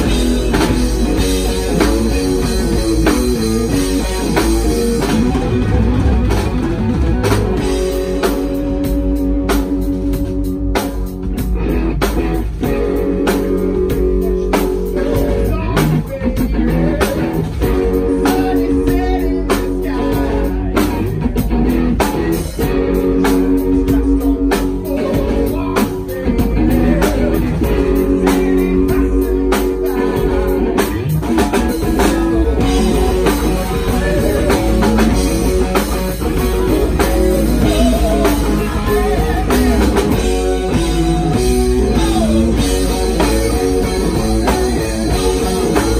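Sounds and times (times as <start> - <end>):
bass guitar: 0.0 - 45.9
drum kit: 0.0 - 45.9
electric guitars: 0.0 - 45.9
man singing: 12.6 - 45.9.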